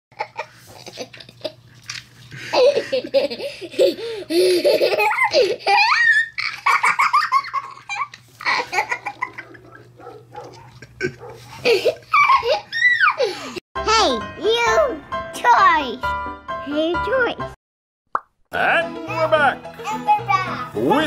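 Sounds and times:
young child laughing: 2.4s - 9.7s, 10.8s - 13.6s.

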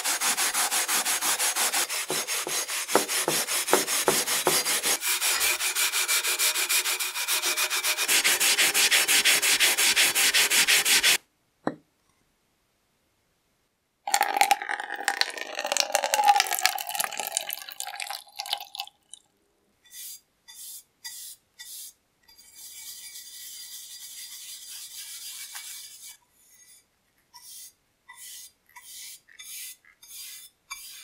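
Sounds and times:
bristle brush scrubbing metal: 0.0s - 11.2s, 19.9s - 26.2s, 27.4s - 31.0s
liquid pouring into plastic cup: 14.1s - 19.2s.

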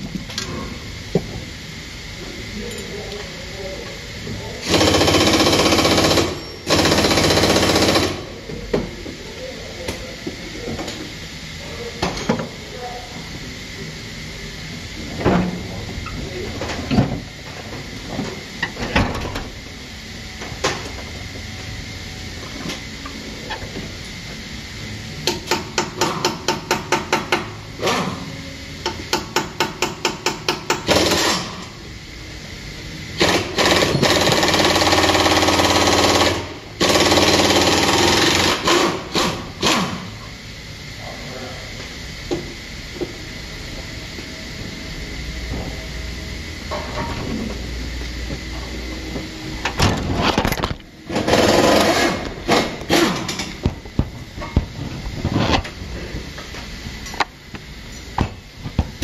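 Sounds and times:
air impact wrench rattling: 4.6s - 8.3s, 29.2s - 31.6s, 33.2s - 40.1s, 50.1s - 53.6s.

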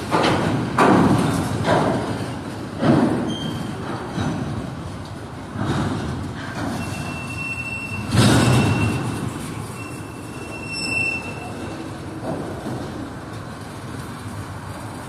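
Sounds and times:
loud clatter: 0.0s - 9.9s
steel wheels rumbling on rails: 0.0s - 15.0s
high wheel squeal: 6.7s - 12.0s.

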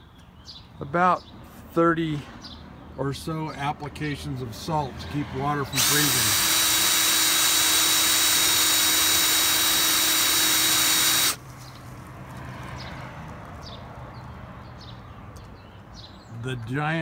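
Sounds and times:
electric drill whirring: 5.8s - 11.4s.

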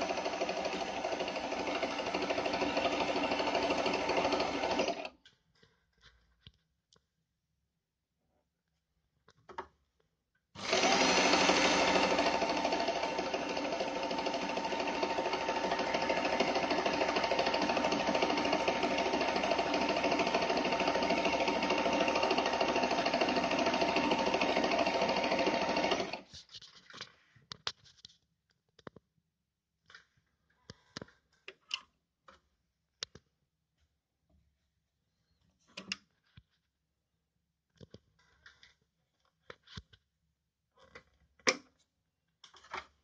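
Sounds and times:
sewing machine stitching: 0.0s - 5.2s, 10.6s - 26.3s.

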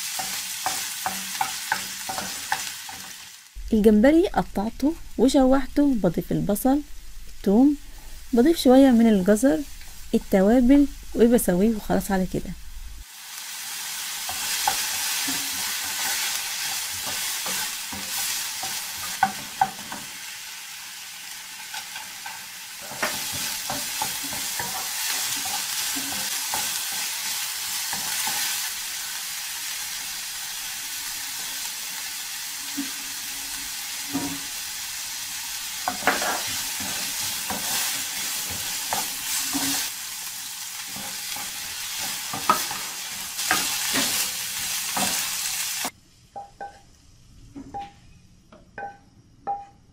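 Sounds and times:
shrimp sizzling in a frying pan: 0.0s - 3.6s, 13.0s - 46.0s.

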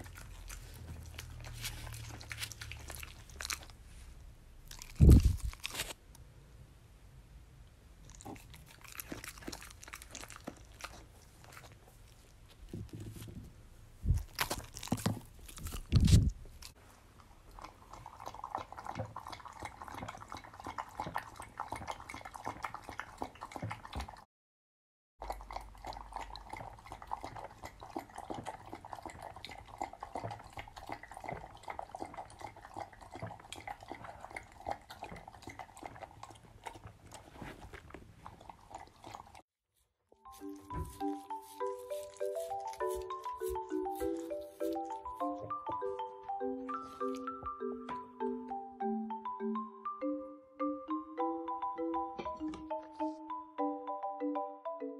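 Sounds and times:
dog lapping a drink: 0.0s - 3.7s, 17.5s - 24.2s, 25.2s - 39.4s
dog crunching food: 0.0s - 3.8s, 4.6s - 6.0s, 8.0s - 12.8s, 14.0s - 24.2s, 40.3s - 45.6s.

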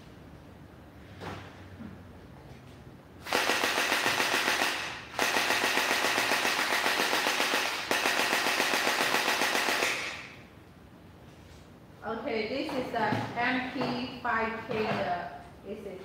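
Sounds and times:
toy blaster firing full auto: 3.2s - 10.3s.

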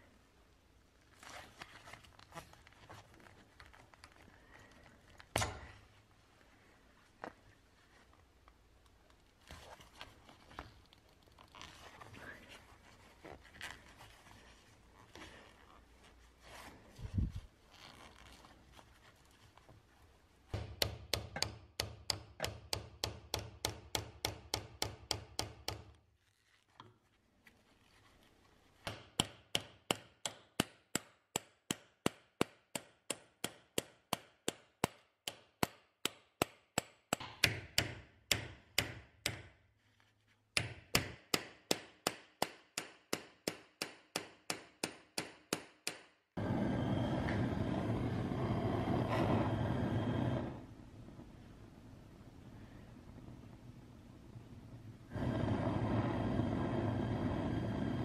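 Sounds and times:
gas torch hissing: 46.4s - 50.8s, 55.1s - 58.0s.

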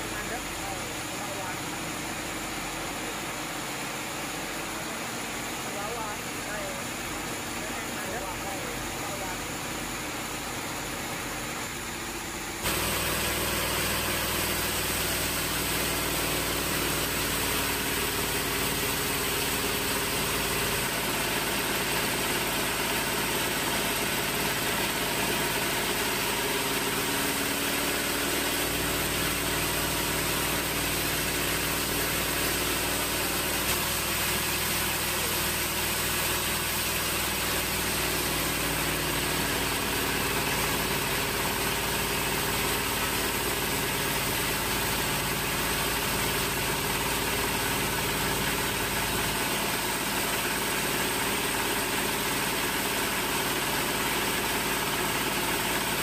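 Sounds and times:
band saw cutting log: 12.6s - 56.0s.

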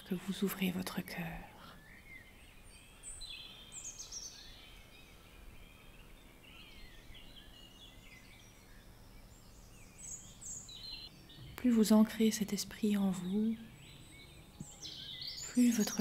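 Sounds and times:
birds chirping: 0.0s - 16.0s
low steady hum: 0.0s - 16.0s.

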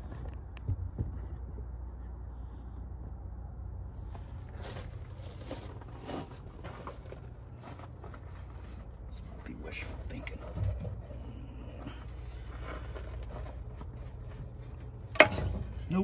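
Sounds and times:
steady low rumble: 0.0s - 16.0s
faint rustling: 3.9s - 16.0s.

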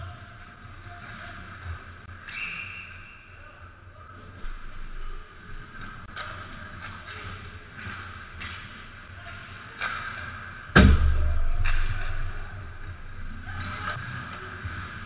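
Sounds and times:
loud bang: 10.8s - 12.2s.

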